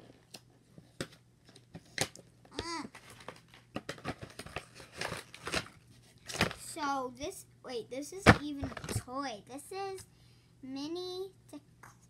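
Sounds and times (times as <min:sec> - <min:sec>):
toy box clicks and crinkles: 0:02.9 - 0:06.6.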